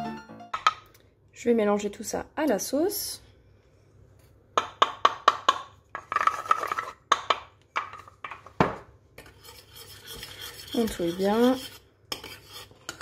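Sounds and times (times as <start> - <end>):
pestle knocking on metal saucepan: 4.6 - 5.7.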